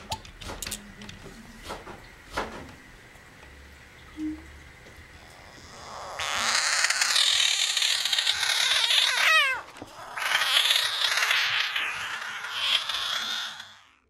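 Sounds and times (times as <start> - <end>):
frog screaming: 5.2 - 14.0.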